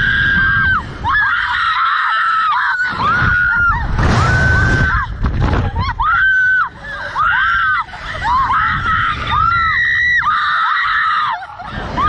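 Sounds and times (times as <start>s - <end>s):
low rumble: 2.9s - 10.2s
woman screaming: 5.8s - 12.0s.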